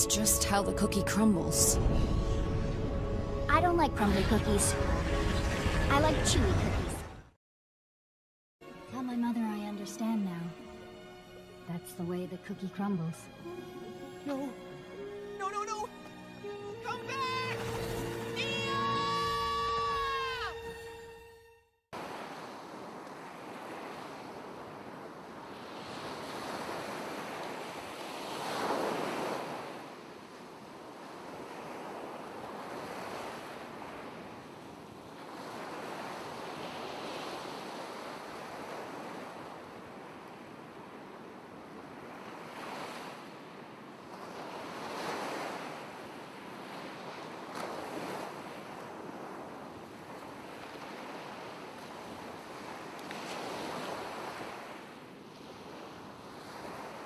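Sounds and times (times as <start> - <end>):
ocean waves washing in: 0.0 - 7.4, 22.0 - 57.0.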